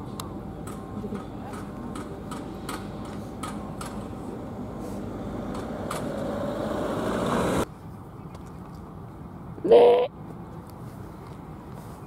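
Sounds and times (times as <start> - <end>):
diesel engines idling: 0.0 - 7.7.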